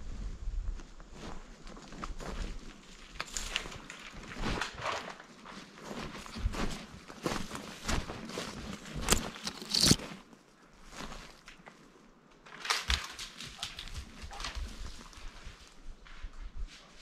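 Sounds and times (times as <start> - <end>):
branches brushing: 3.1 - 11.6
boots crunching on twigs: 6.0 - 10.3.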